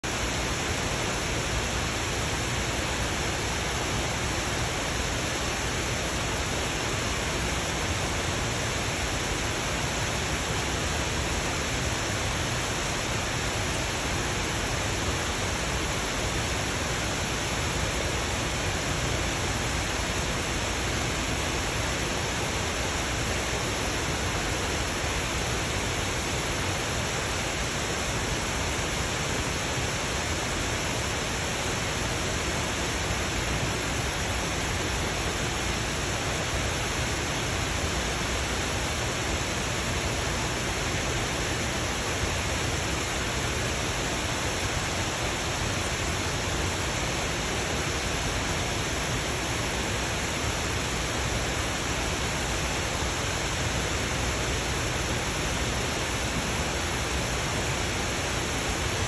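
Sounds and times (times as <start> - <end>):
steady hiss: 0.0 - 59.0.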